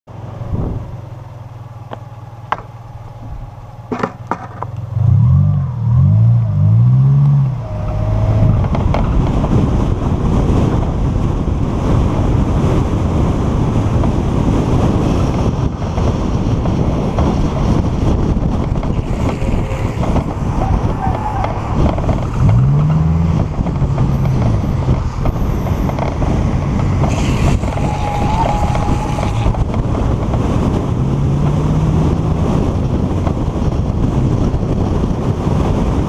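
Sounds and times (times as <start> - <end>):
wind rushing over microphone: 0.1 - 4.2, 4.9 - 36.0
low hum: 0.1 - 10.4
longboard wheels rolling on asphalt: 0.1 - 36.0.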